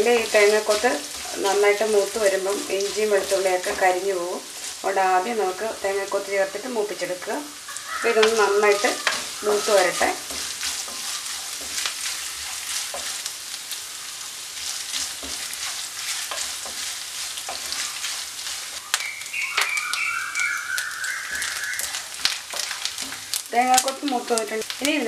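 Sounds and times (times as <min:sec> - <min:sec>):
spatula stirring: 0:00.0 - 0:24.8
food sizzling in hot oil: 0:00.0 - 0:25.0
high rising tone: 0:19.0 - 0:22.0.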